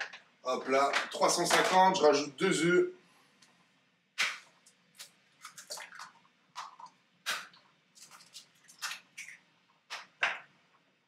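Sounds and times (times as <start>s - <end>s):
wet drips: 4.3s - 10.2s.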